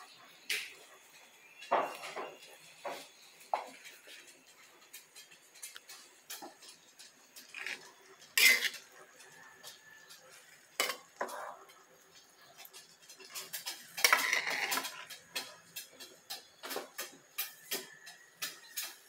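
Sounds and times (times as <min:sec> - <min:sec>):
metal spatula scraping a wok: 0:03.8 - 0:17.6.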